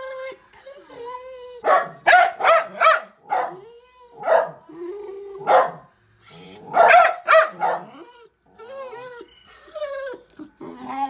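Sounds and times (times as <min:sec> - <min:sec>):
dog barking: 0:01.6 - 0:04.6, 0:05.4 - 0:05.9, 0:06.7 - 0:08.0
dog whining: 0:06.2 - 0:06.9, 0:07.6 - 0:11.0.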